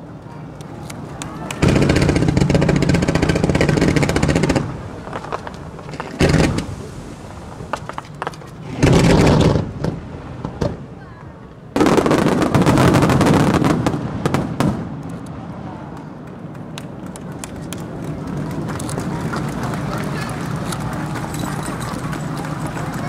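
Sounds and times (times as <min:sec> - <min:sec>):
scattered firework pops: 0:00.8 - 0:07.0, 0:07.6 - 0:10.8
fireworks bangs and crackling: 0:01.2 - 0:23.0.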